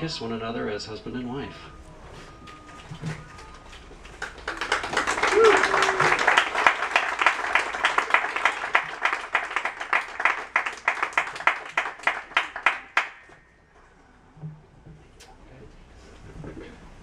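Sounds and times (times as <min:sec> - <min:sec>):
people applauding: 0:02.0 - 0:13.4.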